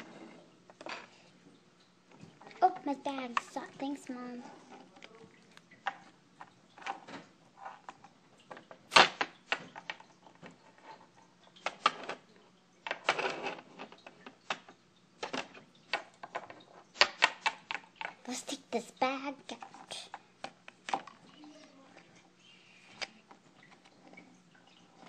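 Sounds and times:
plastic toys knocking and clicking: 2.1 - 5.2, 5.8 - 22.1.

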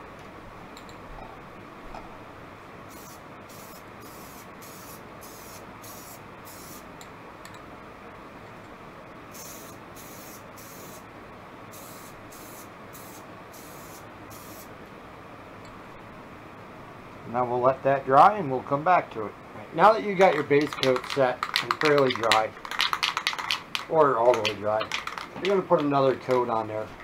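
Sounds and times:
spray can hissing bursts: 2.9 - 6.9, 9.4 - 11.0, 11.7 - 14.7.

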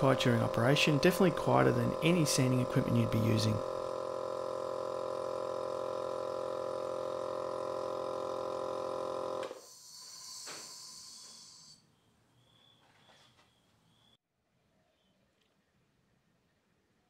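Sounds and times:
vacuum pump humming: 0.0 - 11.7
brief hiss: 9.5 - 11.8.

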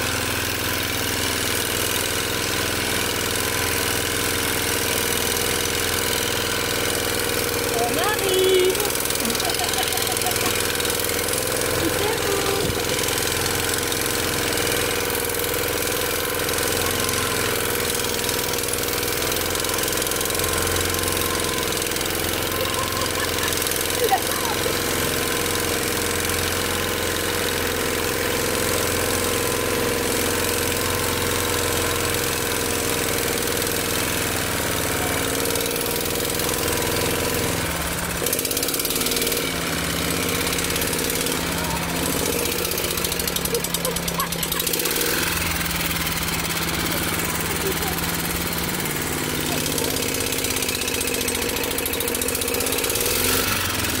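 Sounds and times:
walk-behind tractor engine running: 0.0 - 54.0.

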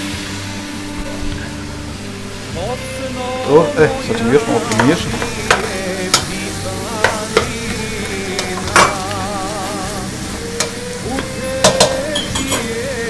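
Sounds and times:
peppers sizzling in a pan: 0.0 - 13.0
spoon knocking against a pan: 4.1 - 6.4, 10.5 - 12.7.

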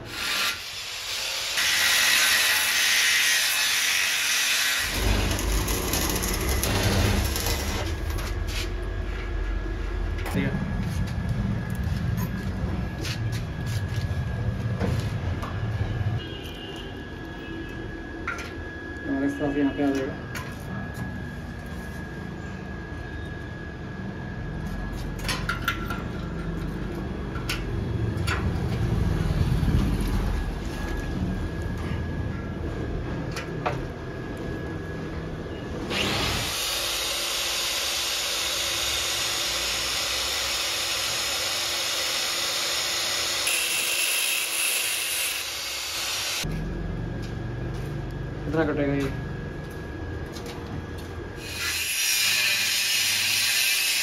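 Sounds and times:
angle grinder cutting steel: 0.0 - 8.1, 35.9 - 46.5, 51.4 - 54.0.

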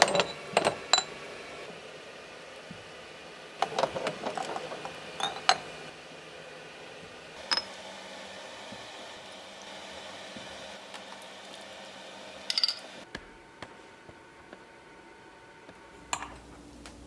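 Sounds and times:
tongs clinking on glass jars: 0.0 - 1.1, 5.2 - 5.7, 12.5 - 12.9
boiling water bubbling: 7.4 - 12.5.

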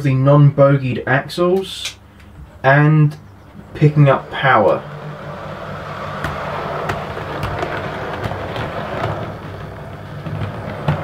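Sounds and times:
small wheels rumbling on rails: 2.4 - 11.0
wheels clicking over rail joints: 2.5 - 11.0.

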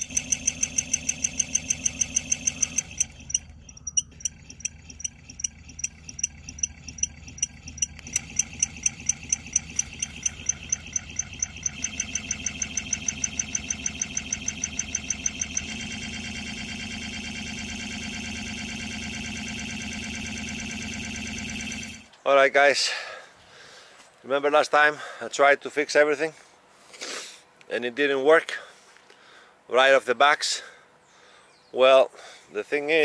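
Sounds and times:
rhythmic knocking: 0.0 - 22.0
electric motor whine and hum: 0.0 - 22.1.

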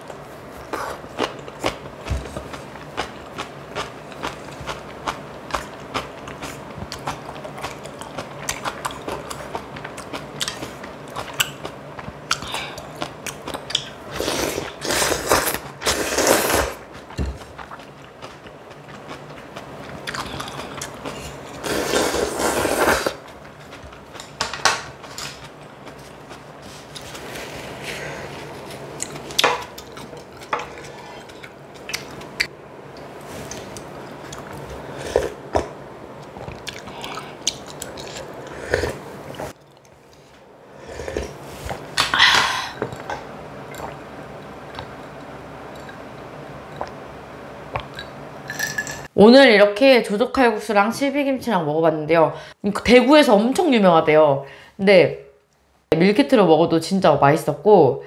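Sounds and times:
wet chewing: 0.8 - 14.0, 14.6 - 27.3, 28.9 - 40.2
slurping noodles: 14.1 - 16.8, 20.5 - 23.2.

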